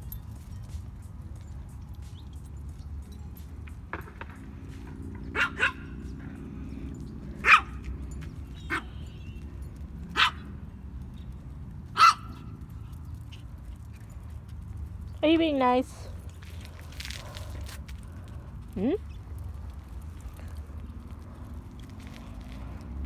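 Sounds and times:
dog barking: 5.3 - 6.0, 7.4 - 7.8, 8.7 - 9.0, 10.1 - 10.5, 12.0 - 12.4.

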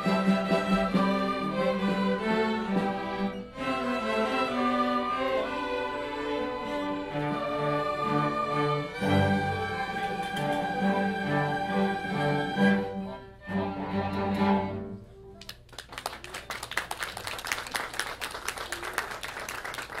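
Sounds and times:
string orchestra with flutes: 0.0 - 15.2
audience applause: 15.4 - 20.0.

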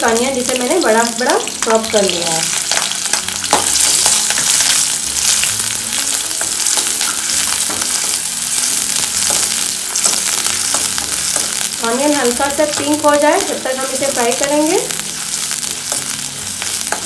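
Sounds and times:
onion sizzling in hot oil: 0.0 - 17.0.

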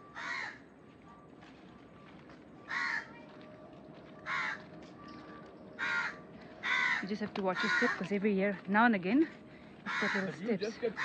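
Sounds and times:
crow cawing: 0.1 - 0.6, 2.6 - 3.2, 4.2 - 8.2, 9.5 - 11.0.

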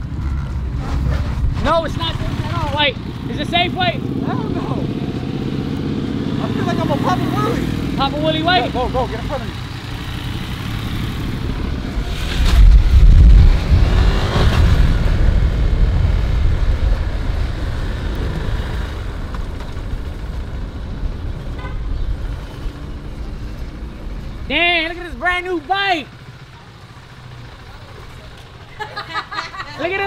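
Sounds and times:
motorcycle engine rumble: 0.0 - 30.0
wind rush on microphone: 11.3 - 24.5.

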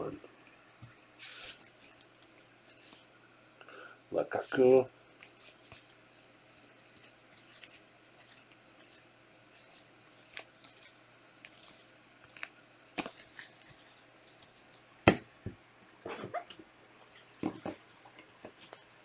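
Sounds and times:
trading cards rustling and sliding: 0.8 - 3.2, 4.3 - 14.9.

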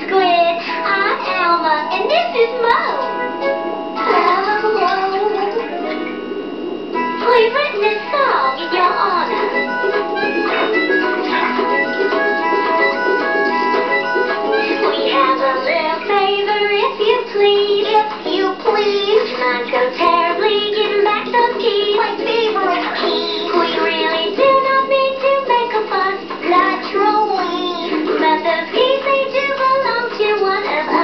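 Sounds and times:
instrumental backing music: 0.0 - 31.0
cartoon characters singing: 14.9 - 31.0.

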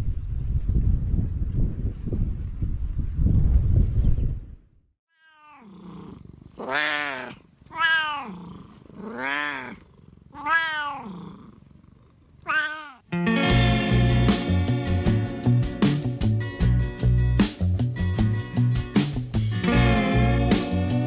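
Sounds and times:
wind rumbling on microphone: 0.0 - 4.8
cat meowing: 5.1 - 5.7, 6.6 - 11.4, 12.4 - 13.1.

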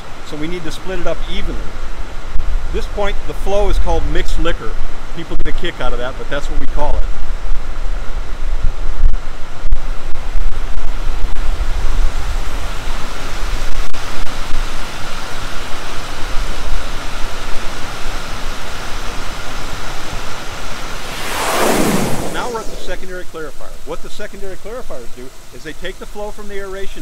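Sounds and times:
faint high-pitched whine: 20.7 - 27.0
wind buffeting microphone: 20.8 - 24.1
liquid rushing: 20.8 - 24.2.

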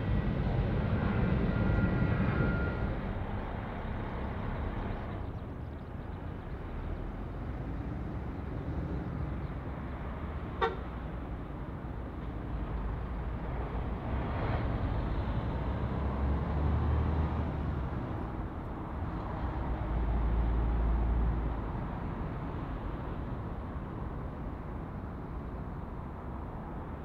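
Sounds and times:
jet airliner engines rumbling: 0.0 - 15.6.

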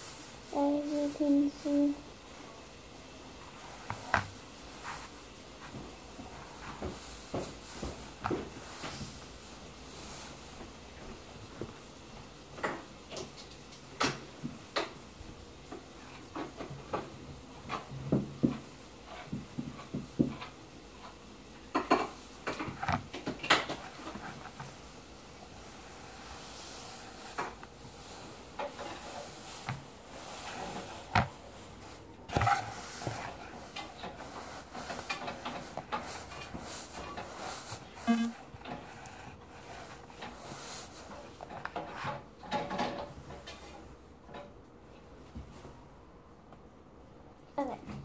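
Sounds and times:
pillow rustling: 3.0 - 11.8, 23.8 - 41.4.

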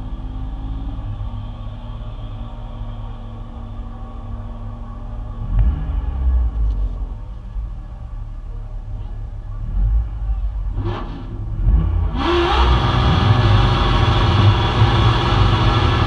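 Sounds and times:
car engine idling: 0.0 - 12.2
loud engine at high revs: 10.8 - 16.0.

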